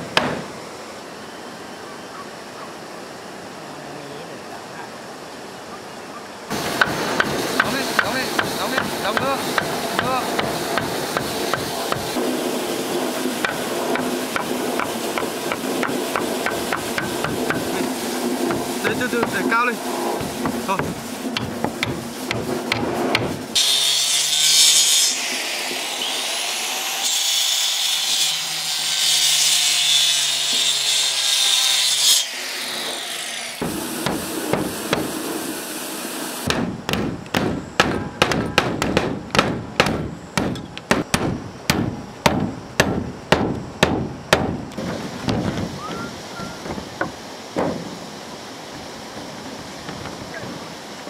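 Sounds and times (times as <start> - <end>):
power tool hissing: 6.5 - 24.2
sharp strokes on wood: 6.5 - 25.3.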